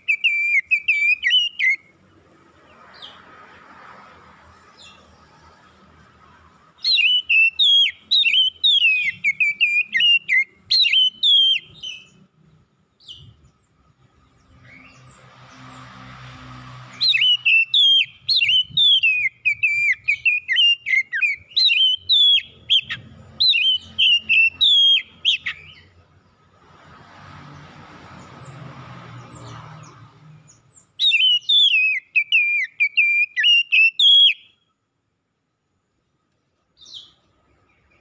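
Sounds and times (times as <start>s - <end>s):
bird singing whistled notes: 0.0s - 1.9s, 6.8s - 12.3s, 16.9s - 26.0s, 29.3s - 34.7s, 36.8s - 38.0s.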